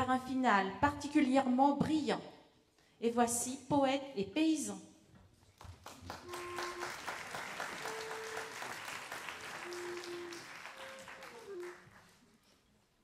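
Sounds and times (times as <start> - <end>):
audience applauding: 5.6 - 12.4.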